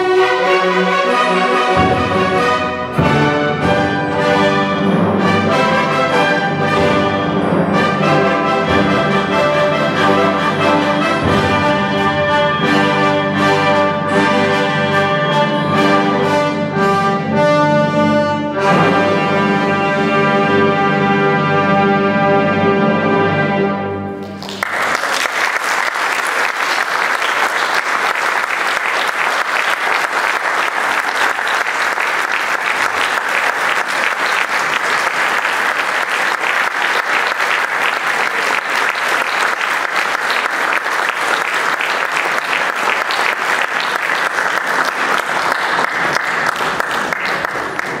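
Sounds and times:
audience applauding: 24.2 - 48.0.

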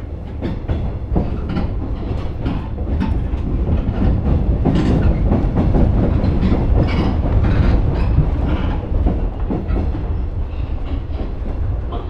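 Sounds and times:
train low rumble: 0.0 - 12.0
wheels clattering over rail joints: 0.4 - 10.2.

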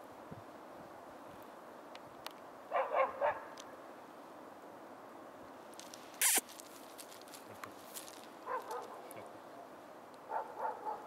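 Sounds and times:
young dog whining yelps: 6.2 - 6.4.

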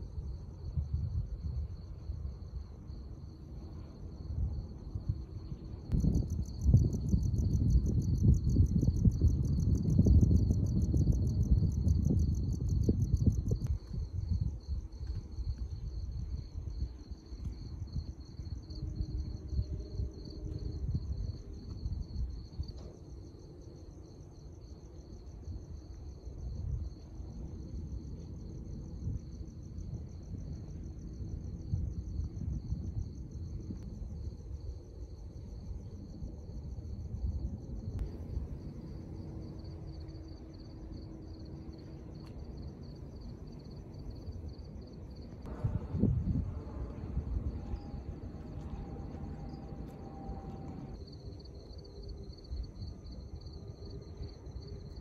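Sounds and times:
crickets chirping: 0.0 - 55.0
low rumble: 36.2 - 53.2.

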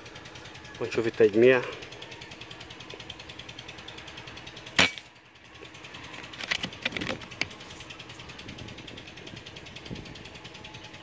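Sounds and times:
air rifle shot: 4.8 - 5.0
metallic clicks of rifle action: 6.2 - 7.5.

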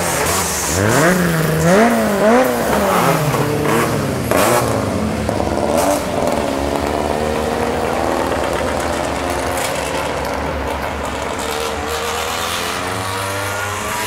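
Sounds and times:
car engines rising in pitch: 0.0 - 14.0
race car engines revving: 0.0 - 14.0.

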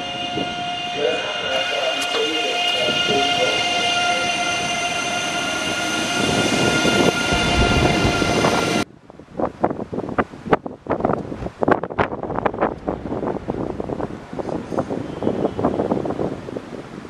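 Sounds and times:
wind noise on microphone: 0.0 - 1.1, 2.9 - 17.0
electric train high whine: 0.0 - 8.9, 12.3 - 17.0
wheel and rail rumble: 0.0 - 8.9, 11.1 - 17.0.

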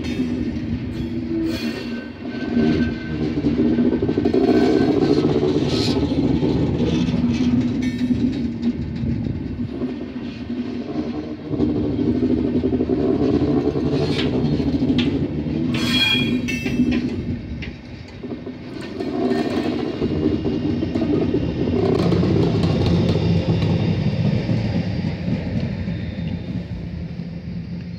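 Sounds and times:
train wheels rumbling on rails: 0.0 - 27.9
high squeal: 15.7 - 16.9.

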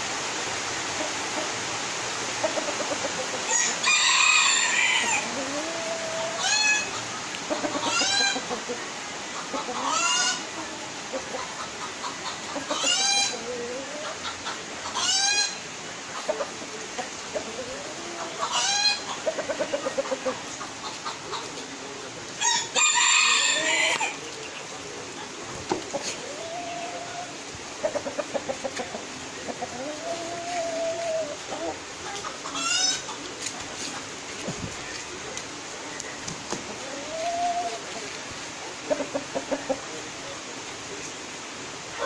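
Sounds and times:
rain hissing: 0.0 - 42.0
chickens clucking: 0.8 - 42.0
chicken squawk calls: 9.6 - 10.6, 11.6 - 15.6, 17.4 - 21.5, 25.8 - 33.2.

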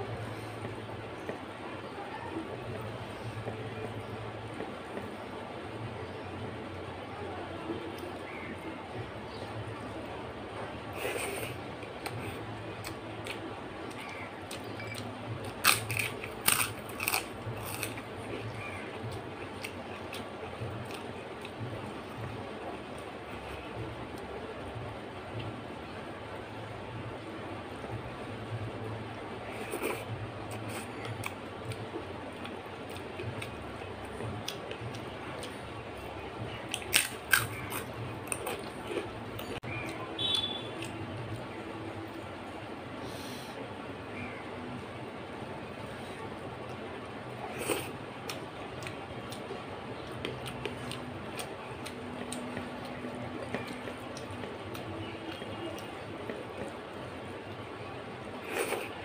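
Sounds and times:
steady low hum: 0.0 - 59.0
person chewing with mouth clicks: 12.8 - 18.4
person chewing food: 12.8 - 20.2, 36.7 - 41.0, 58.4 - 59.0.

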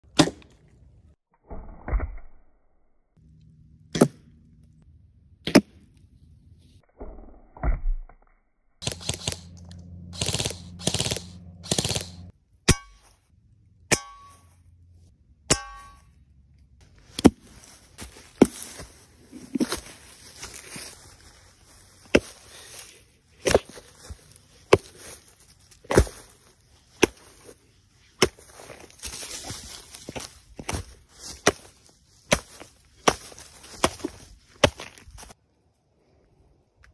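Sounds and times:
rapid fire burst: 8.8 - 9.5, 10.1 - 12.3
steady motor hum: 8.8 - 12.3.

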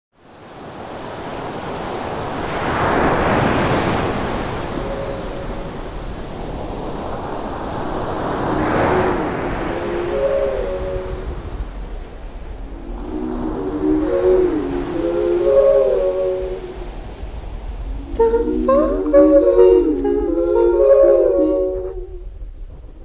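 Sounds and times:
surf breaking on rocks: 0.6 - 22.0
faint held tones: 12.6 - 17.2, 17.8 - 22.4.

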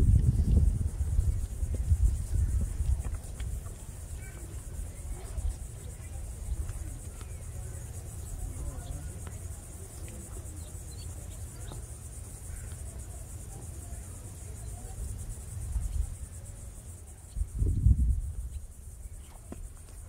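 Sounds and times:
wind rumbling on microphone: 0.0 - 9.2, 14.8 - 16.4, 17.1 - 20.0
insects buzzing: 0.0 - 20.0.

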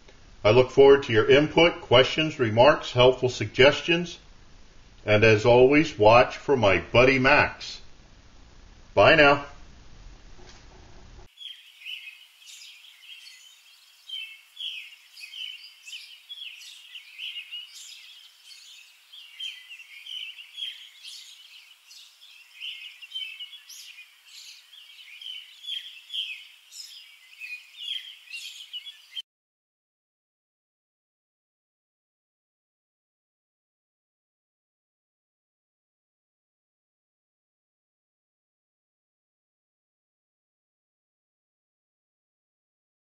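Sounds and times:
birds chirping and singing: 11.3 - 29.2.

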